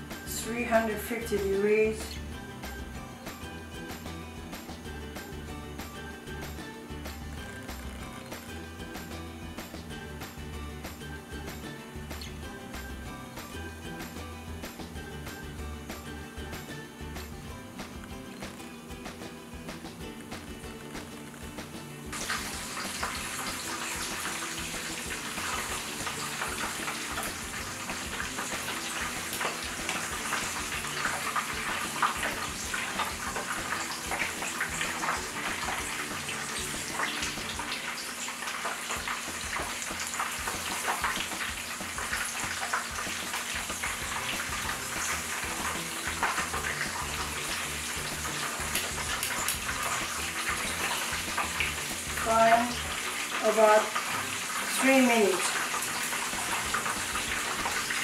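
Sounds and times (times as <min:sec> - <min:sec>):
deep-frying oil sizzling: 0:00.0 - 0:58.0.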